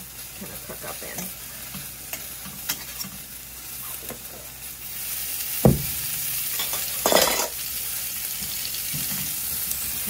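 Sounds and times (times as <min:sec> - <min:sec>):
vegetables sizzling in a pan: 0:00.0 - 0:10.0
sharp knock: 0:05.6 - 0:06.0.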